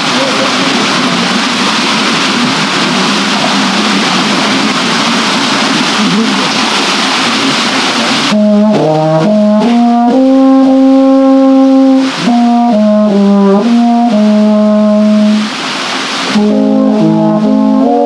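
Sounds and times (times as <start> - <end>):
water wheel and river rushing: 0.0 - 18.0
brass ensemble playing chords: 8.2 - 15.6, 16.3 - 18.0.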